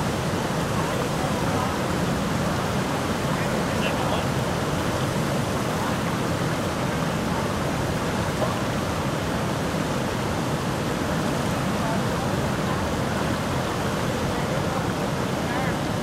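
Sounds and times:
river rapids rushing: 0:00.0 - 0:16.0
water pouring from dam outlet: 0:00.0 - 0:16.0.

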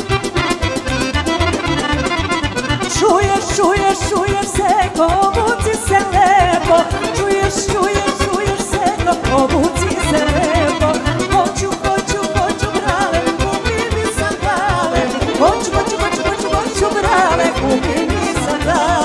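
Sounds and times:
bass and drum beat: 0:00.0 - 0:11.4
accordion: 0:00.0 - 0:19.0
folk band music: 0:00.0 - 0:19.0
vibrato melody: 0:00.0 - 0:19.0.

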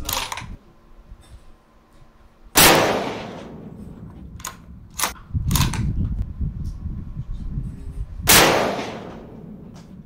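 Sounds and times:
rifle shot with ringing tail: 0:02.6 - 0:05.1, 0:08.3 - 0:09.8.

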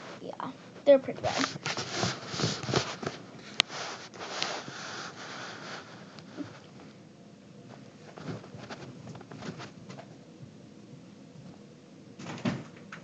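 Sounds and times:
rustling and scraping: 0:00.0 - 0:07.0, 0:07.6 - 0:10.2.

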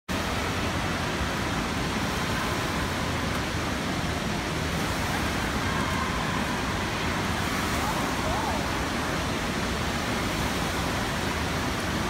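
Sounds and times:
water rushing: 0:00.1 - 0:12.0
wave pool churning: 0:00.1 - 0:12.0.

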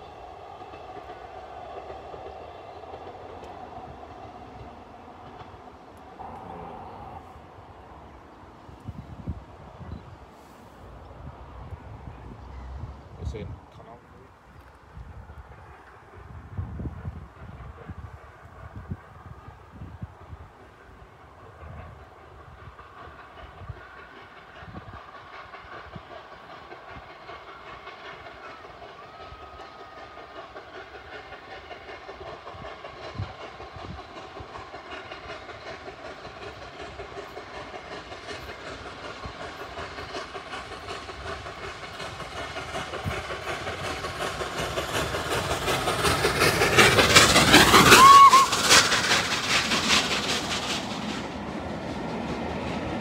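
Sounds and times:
steam locomotive exhaust beats: 0:00.0 - 0:53.0
whistle-like tone: 0:47.9 - 0:48.6.

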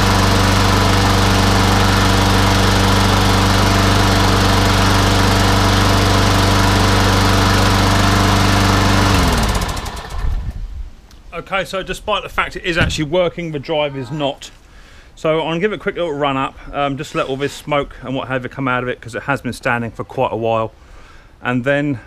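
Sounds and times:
lawn mower engine running: 0:00.0 - 0:10.6.

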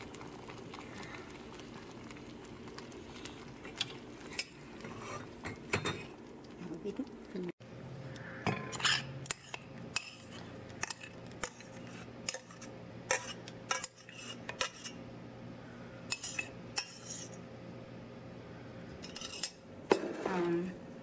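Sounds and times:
metal spoon scraping saucepan: 0:08.5 - 0:15.0, 0:16.1 - 0:17.4, 0:19.0 - 0:20.3.

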